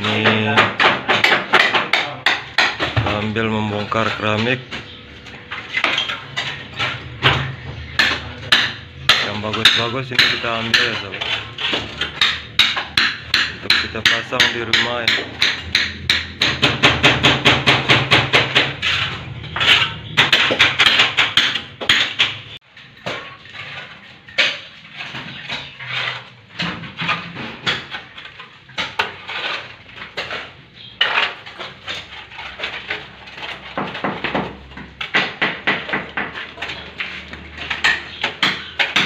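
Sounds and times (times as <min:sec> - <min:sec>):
hammer striking ceramic tiles: 0:00.0 - 0:03.3, 0:05.6 - 0:26.8, 0:28.8 - 0:39.0.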